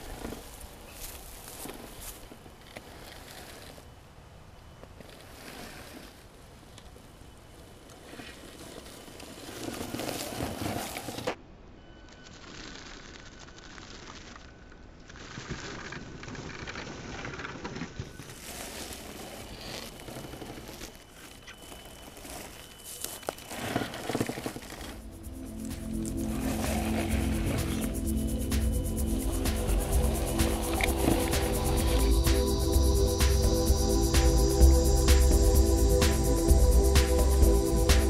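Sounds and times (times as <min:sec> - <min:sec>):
tyres rustling through leaves: 0:00.0 - 0:11.4, 0:12.0 - 0:38.0
electric motor whine: 0:19.8 - 0:38.0.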